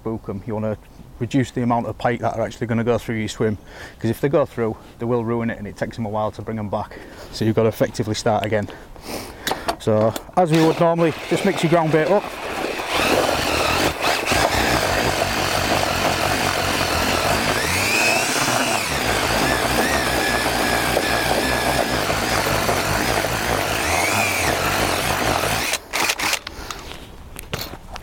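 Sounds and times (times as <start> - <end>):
electric drill motor whine: 10.5 - 26.5.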